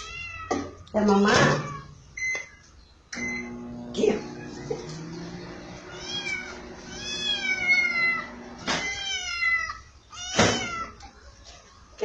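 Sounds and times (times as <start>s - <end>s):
kitten meowing: 5.9s - 11.0s.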